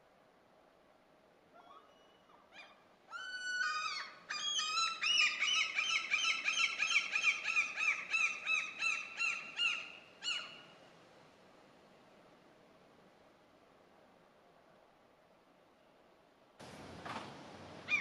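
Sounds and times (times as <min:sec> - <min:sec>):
gull calling: 0:01.6 - 0:10.6.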